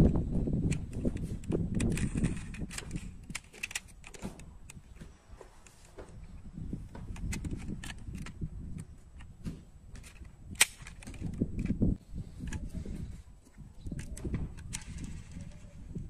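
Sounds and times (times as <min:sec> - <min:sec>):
toy car parts clicking: 0:00.7 - 0:04.8, 0:13.9 - 0:15.8.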